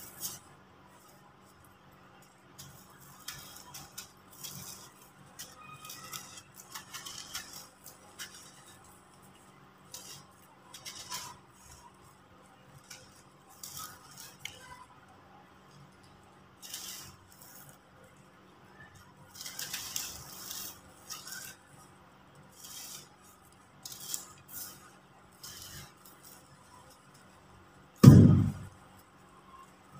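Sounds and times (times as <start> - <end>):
dry soil crumbled by hand: 0.0 - 14.6
grains trickling through fingers: 0.0 - 14.9, 15.7 - 27.9.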